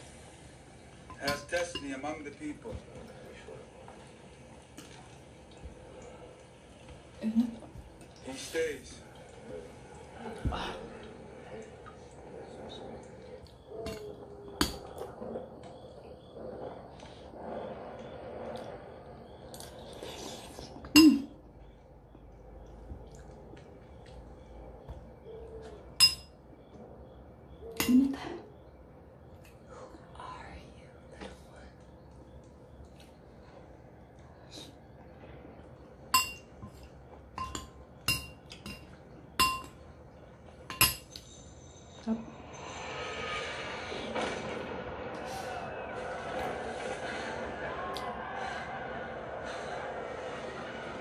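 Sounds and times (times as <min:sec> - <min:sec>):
spoon clinking against bowl: 0:01.1 - 0:02.1, 0:26.0 - 0:26.4, 0:36.2 - 0:39.8, 0:40.7 - 0:41.5.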